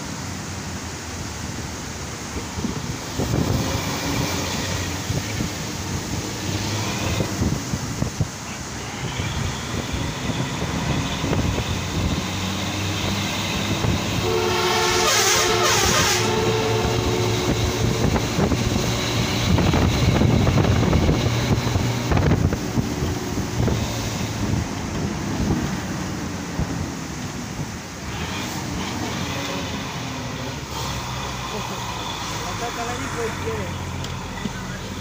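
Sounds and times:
bus engine running: 0:00.0 - 0:35.0
road noise: 0:00.0 - 0:35.0
vehicle horn: 0:14.1 - 0:18.2.

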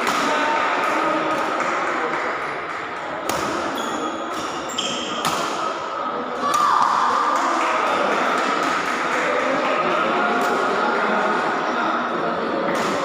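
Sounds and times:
busy sports hall background noise: 0:00.0 - 0:13.0
racket hitting shuttlecock: 0:03.2 - 0:05.7
shoes squeaking on court floor: 0:03.6 - 0:05.3.

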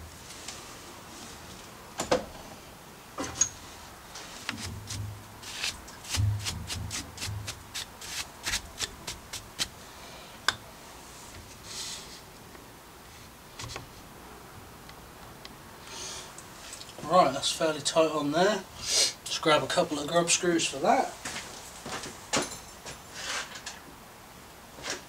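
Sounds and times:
dull thumps: 0:04.5 - 0:09.8.

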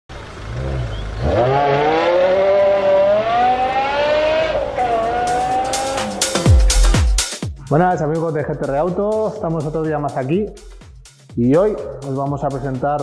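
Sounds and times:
car engine accelerating: 0:00.1 - 0:07.2.

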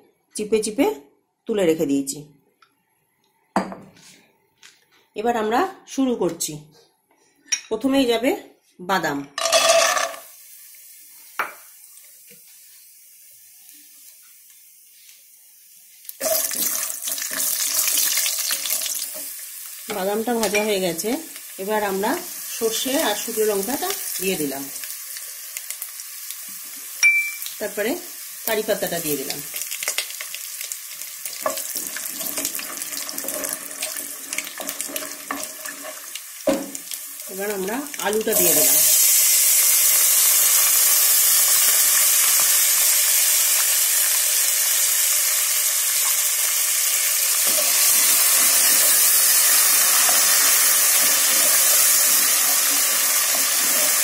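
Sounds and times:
peanuts clattering into pan: 0:09.4 - 0:10.3
oil sizzling: 0:09.4 - 0:54.0.

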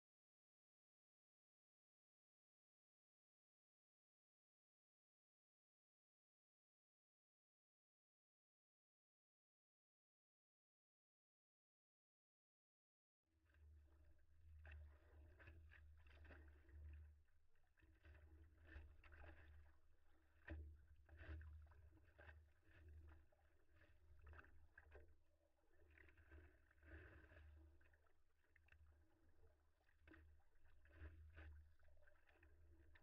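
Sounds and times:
water lapping against paddleboard: 0:13.5 - 0:33.0.

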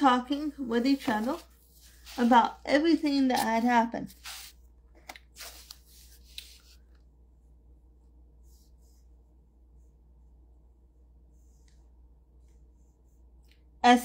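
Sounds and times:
rustling and handling noises: 0:00.0 - 0:09.2.

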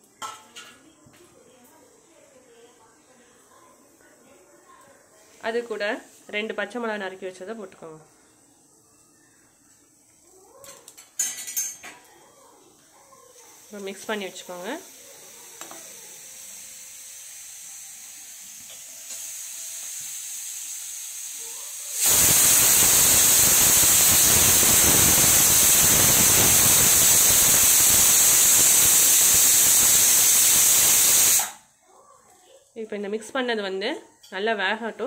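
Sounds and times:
pressure cooker hissing steam: 0:13.3 - 0:31.7.

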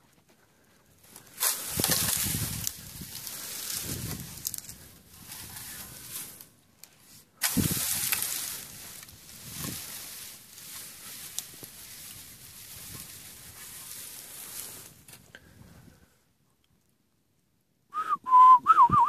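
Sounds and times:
steady hiss: 0:01.0 - 0:15.8
wind buffeting microphone: 0:01.7 - 0:06.0, 0:07.5 - 0:10.0.

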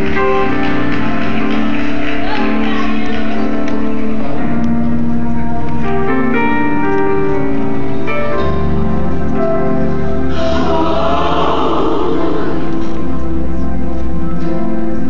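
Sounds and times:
gospel choir over speakers: 0:10.1 - 0:13.7.

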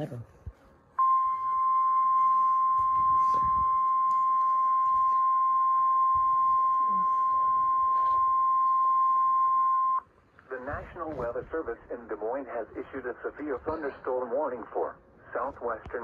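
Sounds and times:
steady high warning beep: 0:01.0 - 0:10.1.

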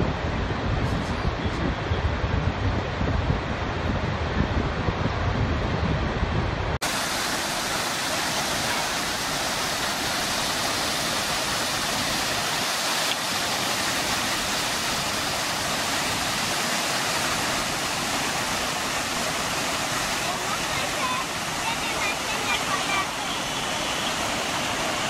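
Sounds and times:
small waterfall rushing: 0:06.8 - 0:25.0.

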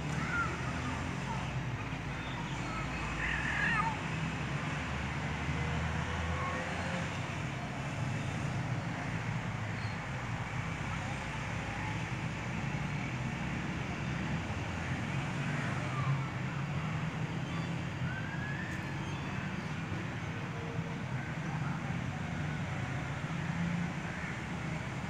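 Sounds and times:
road traffic noise: 0:00.0 - 0:25.0.

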